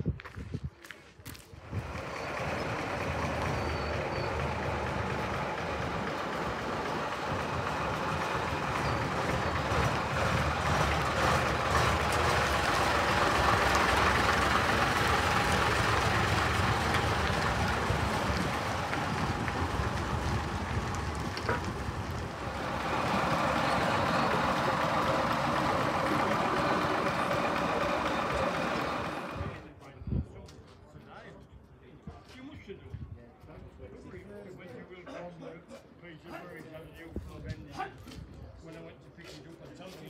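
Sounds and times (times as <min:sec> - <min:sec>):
bus engine driving past: 0:01.6 - 0:29.8.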